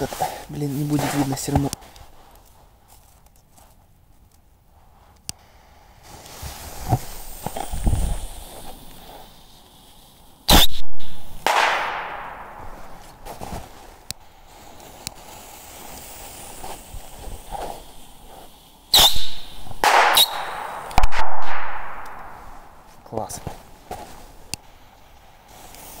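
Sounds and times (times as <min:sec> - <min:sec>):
firework hiss: 0:00.0 - 0:02.5, 0:04.7 - 0:26.0
firework rockets cracking: 0:05.4 - 0:26.0.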